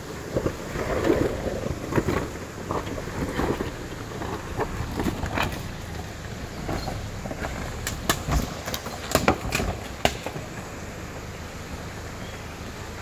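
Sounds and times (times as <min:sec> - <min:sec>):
low engine rumble: 0:00.0 - 0:13.0
tyres knocking on rocks: 0:01.3 - 0:10.6.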